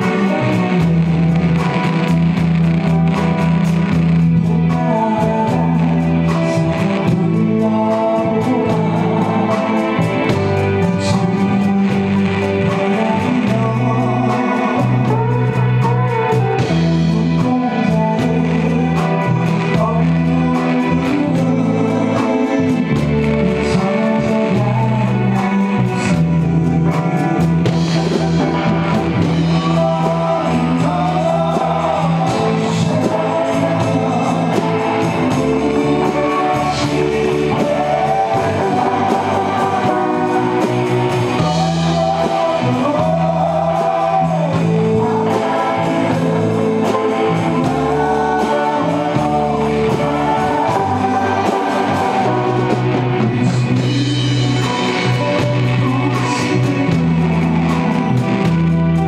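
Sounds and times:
man singing into microphone: 0.0s - 59.0s
rock band playing: 0.0s - 59.0s.

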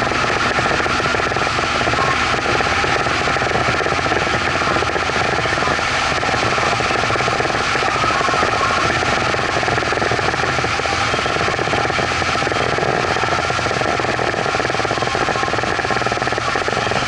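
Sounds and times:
outboard motor running: 0.0s - 17.0s.

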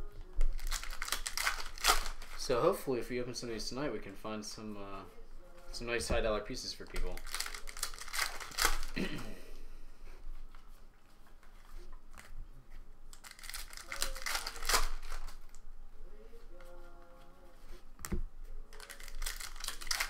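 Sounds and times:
cards being handled: 0.2s - 2.5s, 6.8s - 9.0s, 10.5s - 15.6s, 17.6s - 20.0s
foil wrappers crinkling and tearing: 0.4s - 2.8s, 6.8s - 9.2s, 13.1s - 15.6s, 18.7s - 20.0s.

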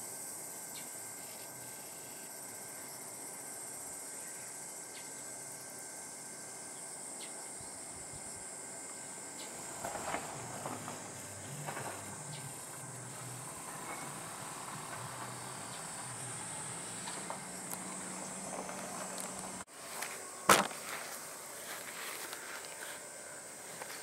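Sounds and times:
high-pitched insect trill: 0.0s - 24.0s
low hum: 8.0s - 22.0s
sharp knock: 20.5s - 20.7s.

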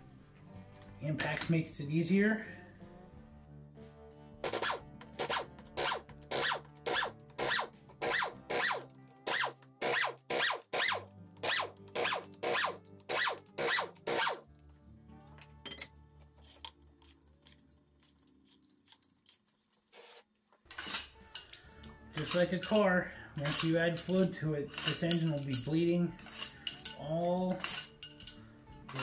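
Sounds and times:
background music: 0.0s - 19.1s, 20.7s - 29.0s
air impact wrench bursts: 4.4s - 14.4s
steel bolts clinking: 15.6s - 19.8s, 20.7s - 29.0s.

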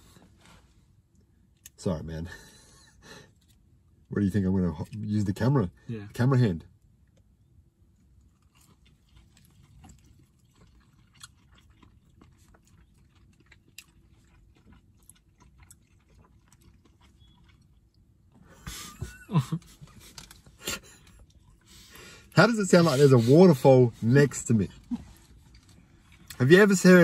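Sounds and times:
wet chewing: 7.9s - 26.5s
men laughing: 18.5s - 21.2s.

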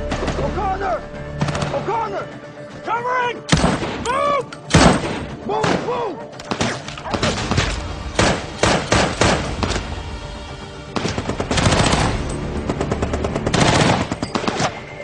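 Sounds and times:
rifle gunfire: 4.7s - 5.9s, 6.5s - 9.8s, 11.0s - 14.8s.

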